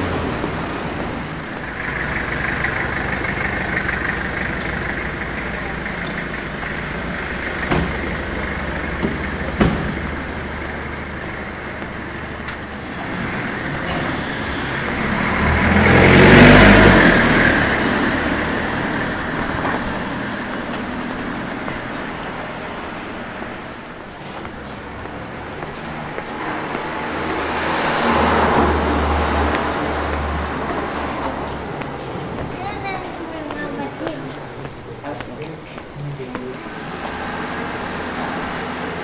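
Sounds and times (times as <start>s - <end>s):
car driving past: 0.0s - 39.0s
sharp knocks: 8.9s - 10.4s.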